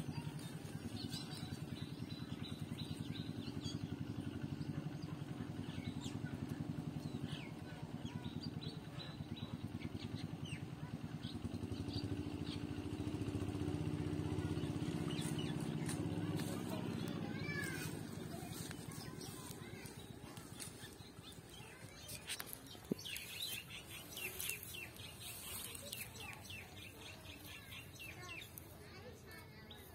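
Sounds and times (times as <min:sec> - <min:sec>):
small engine drone: 0:00.0 - 0:29.3.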